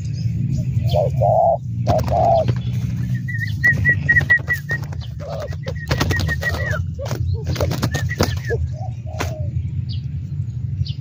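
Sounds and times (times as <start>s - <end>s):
dove cooing: 0.6s - 9.6s
wings beating on ground: 1.8s - 8.6s, 9.2s - 9.4s
quick high bird chirps: 1.9s - 8.6s.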